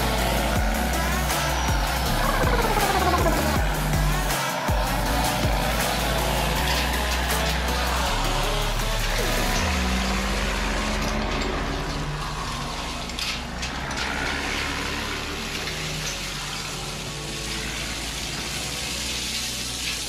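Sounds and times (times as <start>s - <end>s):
toy excavator motors whirring: 0.0s - 20.0s.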